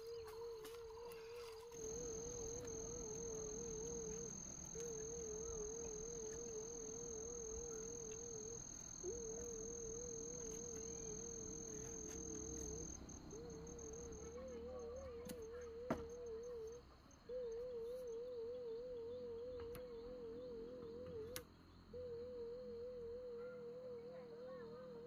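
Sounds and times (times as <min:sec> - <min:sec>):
insects trilling: 0:00.0 - 0:21.4
low wavering tone: 0:01.8 - 0:15.0.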